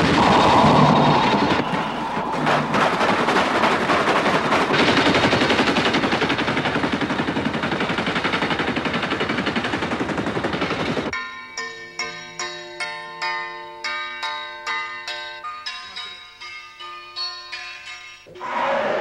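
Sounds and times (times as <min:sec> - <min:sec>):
rapid metallic clatter: 0:00.0 - 0:11.2.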